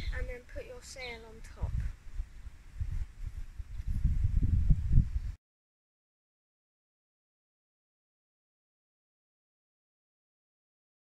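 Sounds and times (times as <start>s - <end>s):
low wind rumble on microphone: 0.0s - 5.4s.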